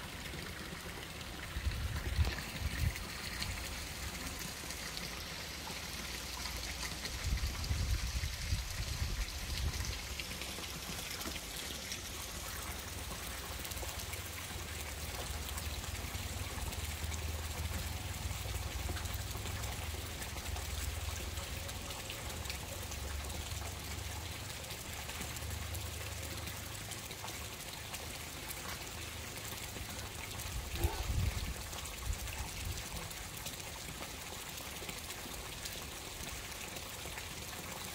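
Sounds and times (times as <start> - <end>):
running water trickling: 0.0 - 37.9.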